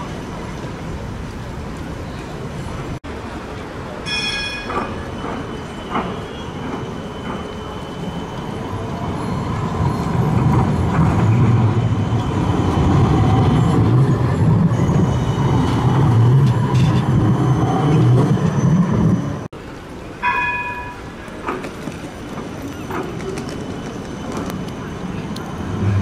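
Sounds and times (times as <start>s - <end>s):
tram wheels rumbling on rail: 0.0s - 26.0s.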